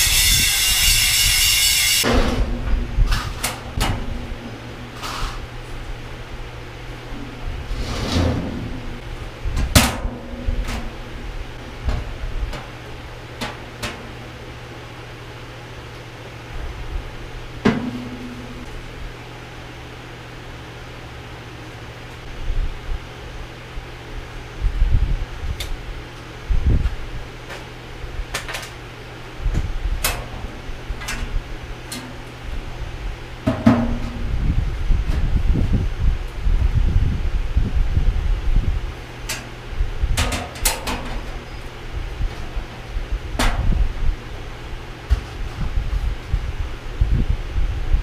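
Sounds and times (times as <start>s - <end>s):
steady low hum: 0.0s - 48.0s
sheet metal scraping: 7.1s - 11.6s
sheet metal knocks and clanks: 17.7s - 18.7s, 33.5s - 34.2s.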